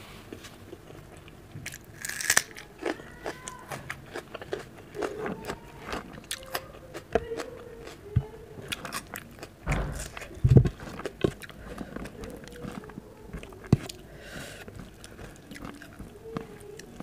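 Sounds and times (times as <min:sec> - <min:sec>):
chewing with wet mouth clicks: 0:00.7 - 0:08.0, 0:08.7 - 0:14.0, 0:14.6 - 0:17.0
knocks: 0:09.7 - 0:10.7.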